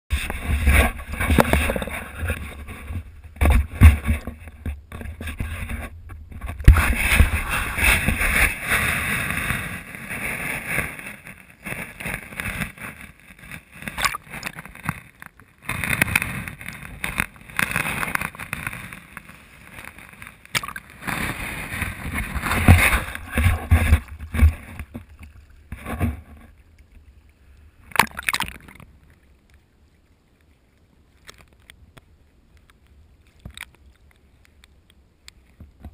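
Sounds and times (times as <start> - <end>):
water sloshing and splashing: 12.4 - 15.2, 19.7 - 29.3.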